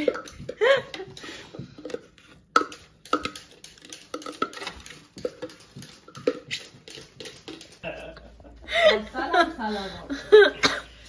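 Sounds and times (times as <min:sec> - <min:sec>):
dishes and utensils clinking: 0:00.0 - 0:08.2.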